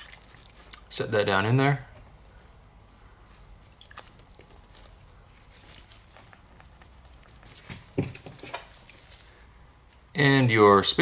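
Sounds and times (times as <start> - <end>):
small metal parts clicking: 0.0 - 0.8.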